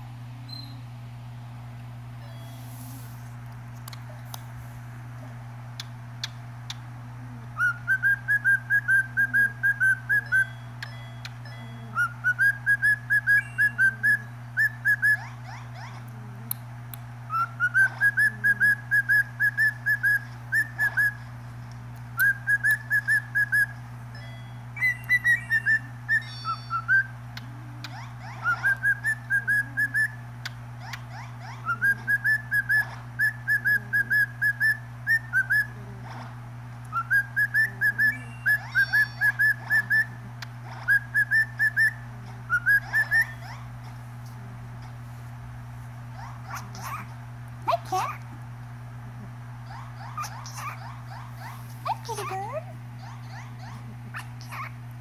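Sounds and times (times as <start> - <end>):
steady low hum: 0.0 - 55.0
cockatiel whistling: 7.6 - 10.5, 12.0 - 15.3, 17.3 - 21.2, 22.2 - 23.8, 24.8 - 27.1, 27.9 - 30.2, 30.9 - 35.8, 36.9 - 40.2, 40.8 - 43.6.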